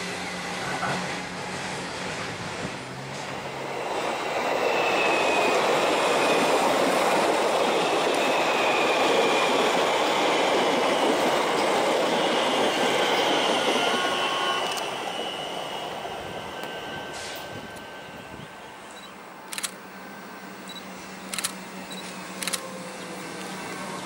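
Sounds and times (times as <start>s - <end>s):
train wheels rumbling on rails: 0.0s - 19.8s
high wheel squeal: 4.2s - 19.1s.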